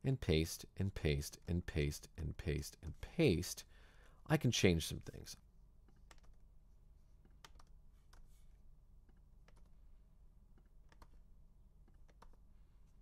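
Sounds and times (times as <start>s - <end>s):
low steady hum: 0.0s - 13.0s
faint keyboard keystrokes: 5.8s - 6.4s, 9.0s - 9.8s, 10.5s - 11.2s, 11.8s - 12.4s.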